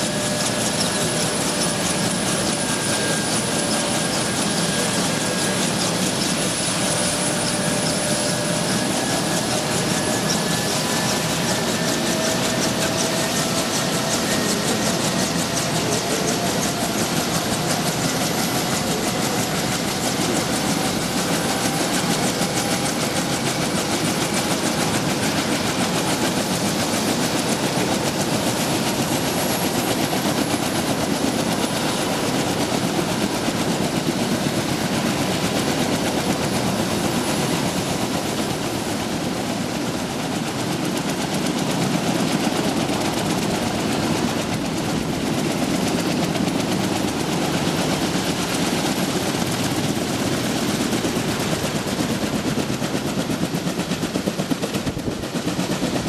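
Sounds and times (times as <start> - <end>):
helicopter rotors and engine: 0.0 - 56.0.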